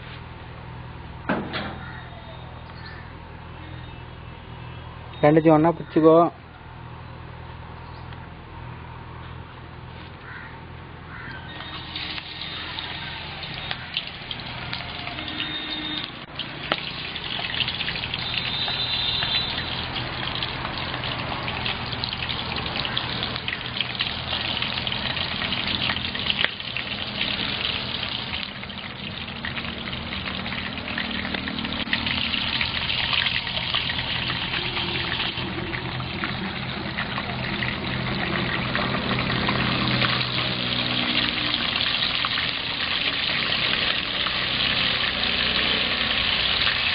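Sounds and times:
food deep-frying in oil: 11.5s - 46.9s.

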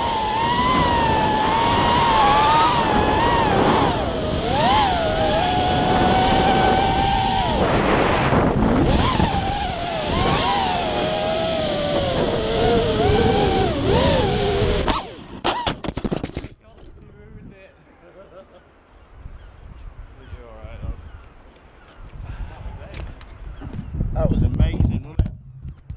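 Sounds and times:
rush of air: 0.0s - 15.4s
drone motors whining: 0.0s - 16.5s.

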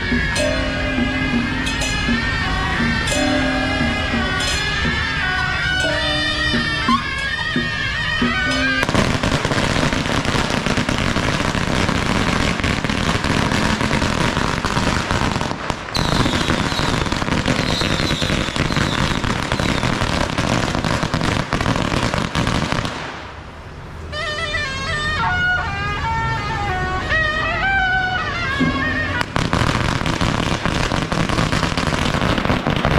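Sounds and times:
music: 0.0s - 10.8s, 24.2s - 30.2s
firecrackers crackling: 0.0s - 23.5s, 28.6s - 32.9s.

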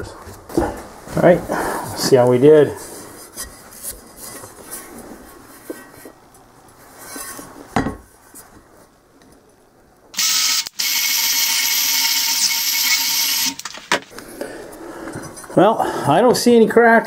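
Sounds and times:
power drill wire wheel whining: 10.2s - 14.2s.

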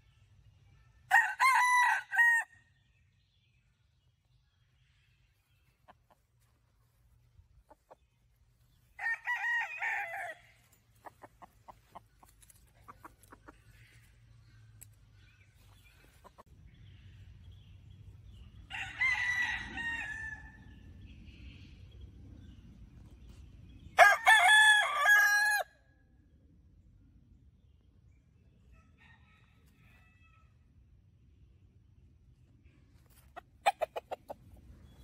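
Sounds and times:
rooster crowing: 1.1s - 2.5s, 9.0s - 10.6s, 18.7s - 20.6s, 24.0s - 25.7s
chicken clucking: 5.6s - 6.8s, 7.5s - 8.2s, 10.7s - 14.3s, 15.6s - 16.5s, 33.2s - 35.0s.

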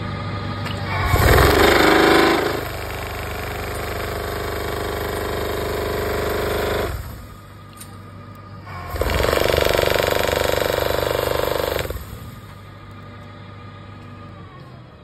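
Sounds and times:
machine motor humming: 8.4s - 13.4s.

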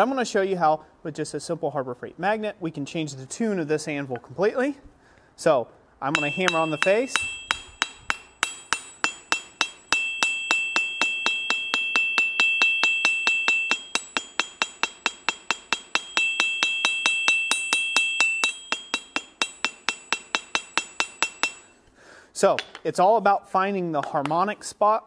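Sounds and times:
hammer ringing on anvil: 6.1s - 21.8s.

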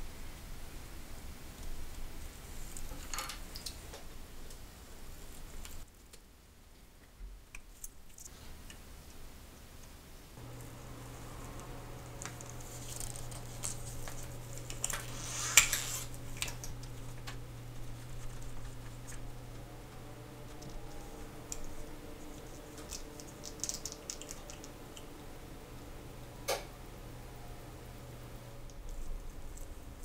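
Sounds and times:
low steady hum: 8.6s - 30.0s
plastic crinkling: 10.4s - 24.7s.

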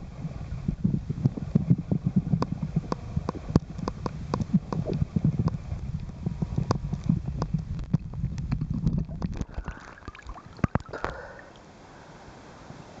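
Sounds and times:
muffled underwater rumble: 0.0s - 11.6s
water splash: 8.9s - 11.6s.

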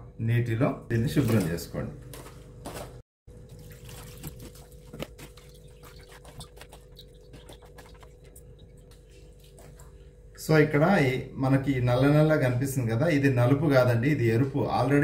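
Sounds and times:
water sloshing in metal bowl: 3.3s - 10.1s
small clicks and splashes: 3.4s - 10.0s.

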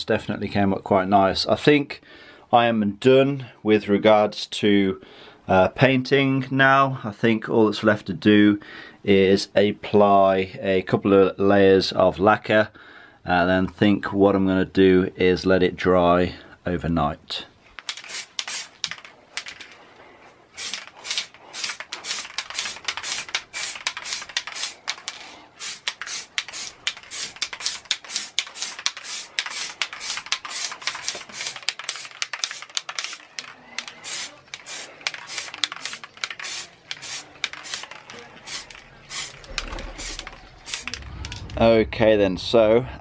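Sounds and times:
aerosol spray can hissing: 17.9s - 19.1s, 20.5s - 41.0s.

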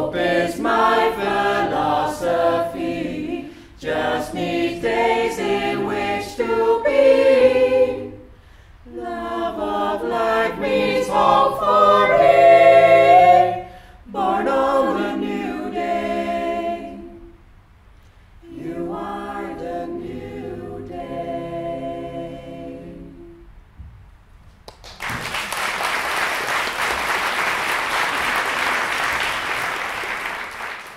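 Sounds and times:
a cappella choir singing: 0.0s - 17.5s, 18.4s - 23.6s
audience applause: 24.7s - 30.9s.

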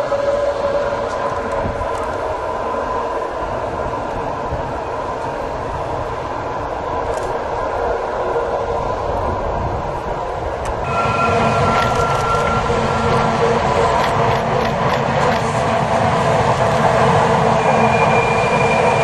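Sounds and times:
train wheels rumbling on rails: 0.0s - 19.0s.

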